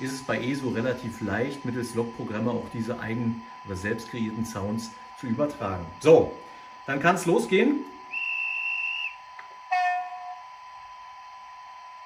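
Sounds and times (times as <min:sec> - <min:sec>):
faint high whine: 0:00.0 - 0:12.0
short train horn: 0:09.7 - 0:10.4.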